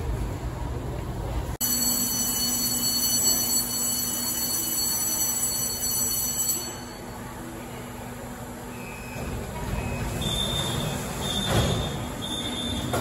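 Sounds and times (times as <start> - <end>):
station noise: 1.6 - 8.7.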